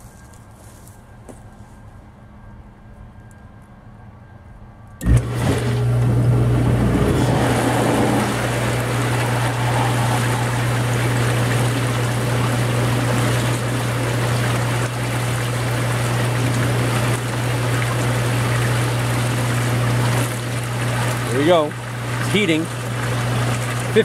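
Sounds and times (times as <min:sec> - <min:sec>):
electric motor hum: 0:05.0 - 0:24.0
water rushing through pipes: 0:05.0 - 0:24.0.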